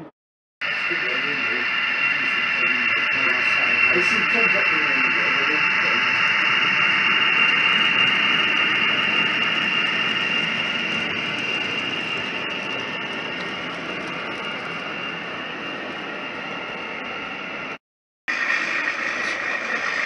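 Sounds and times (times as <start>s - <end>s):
model train whine and hiss: 0.6s - 20.0s.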